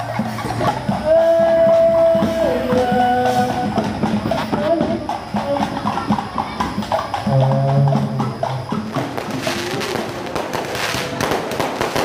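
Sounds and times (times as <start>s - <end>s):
fireworks crackling and popping: 0.0s - 12.0s.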